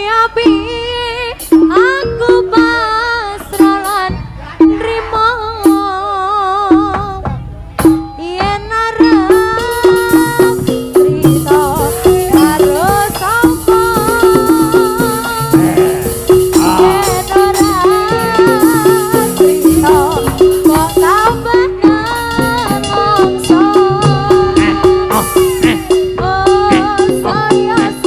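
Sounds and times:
drums: 0.0 - 28.0
struck pitched notes: 0.0 - 28.0
wavering gliding melody: 9.7 - 28.0.

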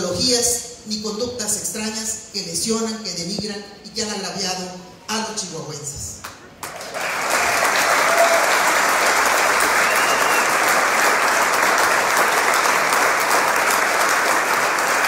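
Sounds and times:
crowd applauding: 6.6 - 15.0.

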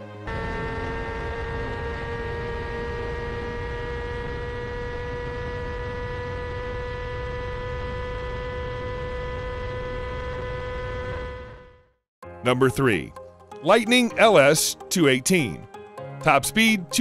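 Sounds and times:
motorcycle engine high-revving: 0.2 - 12.0.

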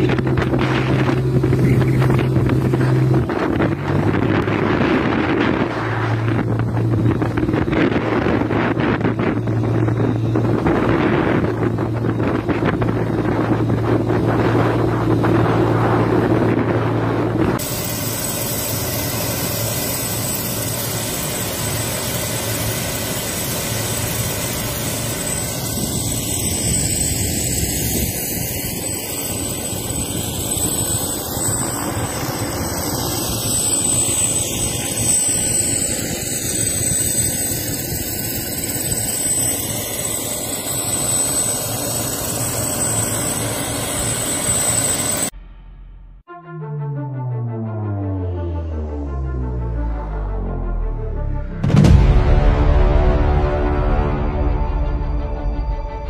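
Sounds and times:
wind on microphone: 0.0 - 17.7
boat engine humming: 0.0 - 45.3
turbine engine whine: 0.0 - 56.0.

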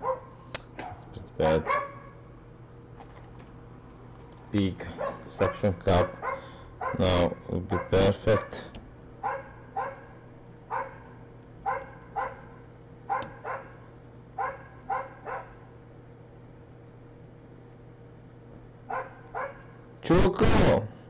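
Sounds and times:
dog yapping: 0.0 - 1.0, 1.6 - 2.1, 5.0 - 7.1, 7.7 - 8.6, 9.2 - 10.1, 10.7 - 13.8, 14.4 - 15.6, 18.9 - 19.7.

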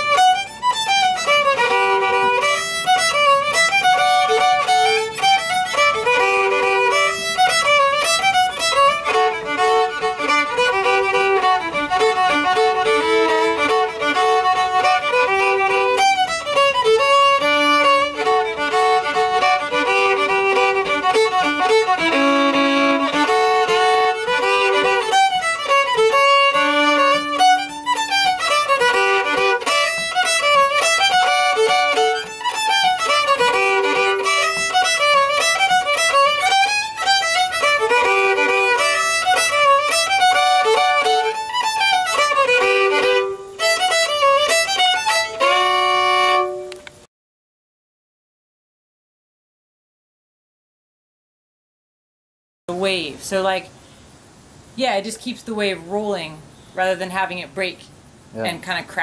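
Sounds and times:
solo fiddle playing: 0.0 - 47.1, 52.7 - 53.8, 54.9 - 59.0.

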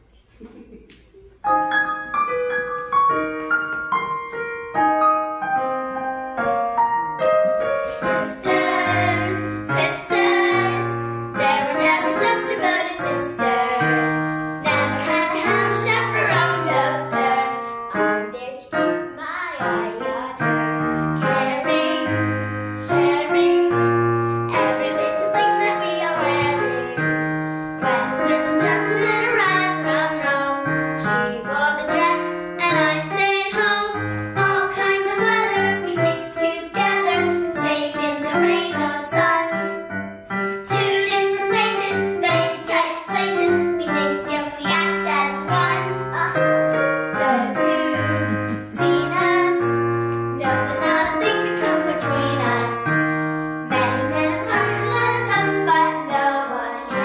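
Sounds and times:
piano piece: 0.0 - 57.0
child singing: 7.4 - 22.2, 22.8 - 23.8, 24.5 - 27.1, 27.8 - 39.7, 40.7 - 53.1, 53.7 - 57.0.

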